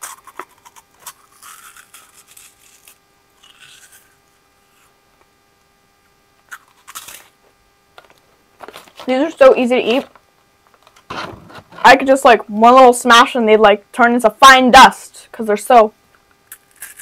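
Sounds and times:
person chewing crunchy candy: 0:00.0 - 0:04.9, 0:06.4 - 0:07.3.

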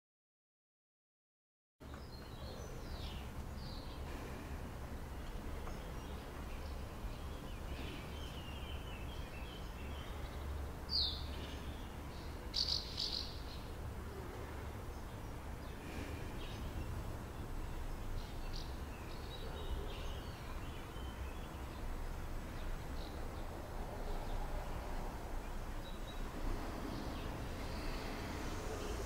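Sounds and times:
faint bird chirps: 0:05.6 - 0:14.4.

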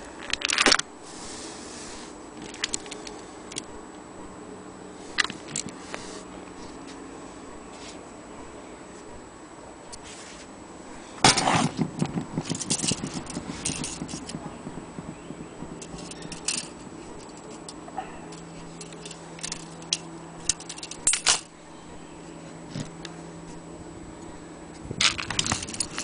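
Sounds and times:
metal chains jangling: 0:12.4 - 0:14.4, 0:15.7 - 0:21.5, 0:25.0 - 0:26.0.

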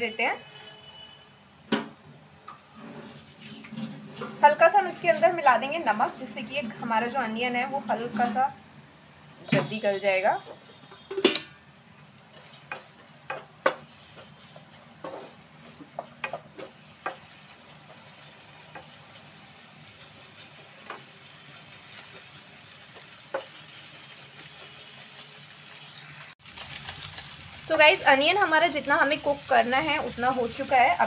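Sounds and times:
onions sizzling in hot oil: 0:04.4 - 0:08.1, 0:12.0 - 0:31.0
wooden spatula knocking pan: 0:12.7 - 0:14.4, 0:15.0 - 0:17.4.

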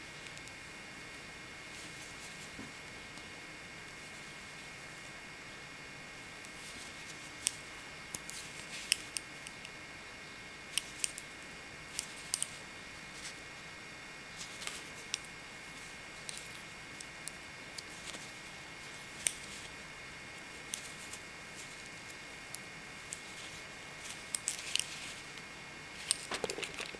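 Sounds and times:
knitting needles clicking: 0:12.0 - 0:12.6.

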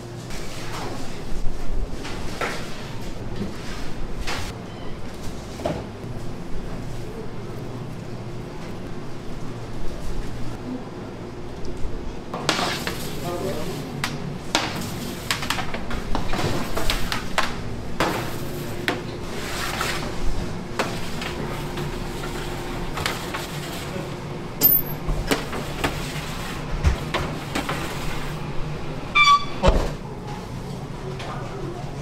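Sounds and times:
kitchen equipment hum: 0:11.9 - 0:32.0
metallic ping: 0:24.6 - 0:25.0.

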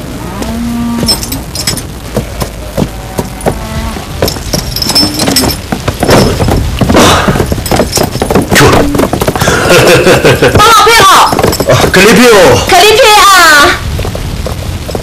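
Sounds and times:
low steady background noise: 0:00.0 - 0:15.0
horse tack jingling: 0:01.0 - 0:03.6, 0:04.2 - 0:09.8, 0:10.5 - 0:12.5.

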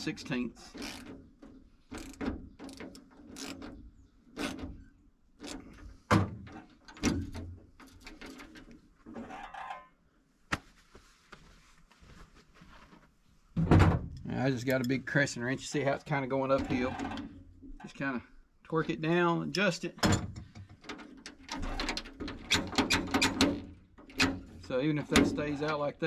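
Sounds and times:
metallic clicks and knocks of latch: 0:00.8 - 0:03.8, 0:05.4 - 0:09.9, 0:13.6 - 0:15.0, 0:20.0 - 0:25.8.

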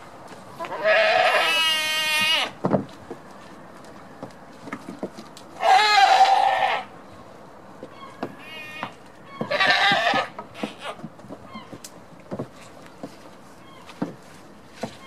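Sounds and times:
goats bleating: 0:00.6 - 0:02.6, 0:05.6 - 0:06.9, 0:08.4 - 0:11.0.

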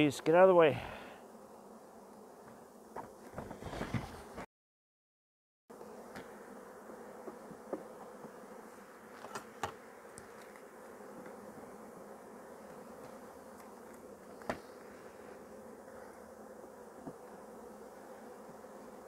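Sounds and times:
honeybees buzzing: 0:00.0 - 0:04.5, 0:05.7 - 0:19.0
hive frames knocking: 0:07.2 - 0:08.4.

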